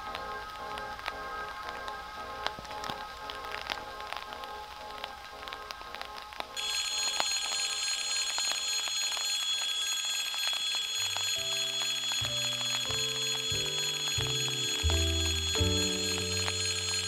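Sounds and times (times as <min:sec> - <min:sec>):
rain pattering and dripping: 0:00.0 - 0:17.0
high electric ringing: 0:06.6 - 0:17.0.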